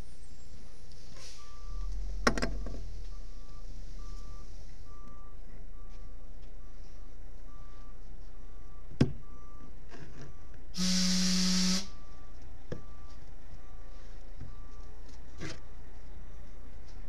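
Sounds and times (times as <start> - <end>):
reversing alarm beeping: 0.4 - 15.0
loud hiss with low hum: 10.8 - 12.0.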